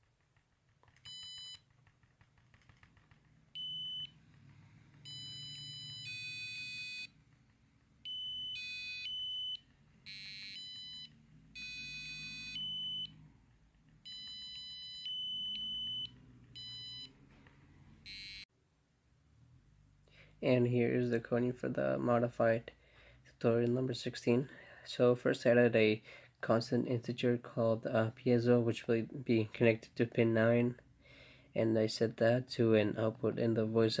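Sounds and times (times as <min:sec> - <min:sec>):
buzzer beeping high tones: 0:03.6 - 0:04.2, 0:05.0 - 0:07.1, 0:08.0 - 0:13.2, 0:14.0 - 0:17.2, 0:18.0 - 0:18.4.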